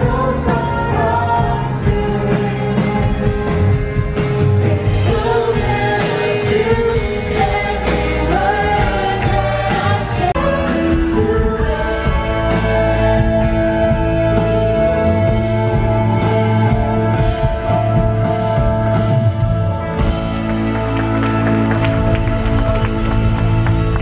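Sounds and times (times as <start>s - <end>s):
band with bass and drums: 0.0s - 24.0s
person singing: 4.3s - 19.2s.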